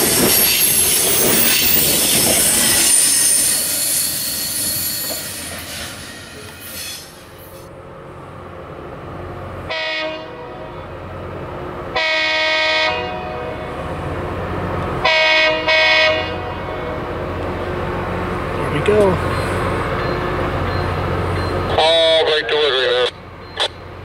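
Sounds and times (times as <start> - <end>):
train rumble: 0.0 - 24.0
train horn blasts: 9.7 - 10.9, 12.0 - 13.8, 15.0 - 17.2.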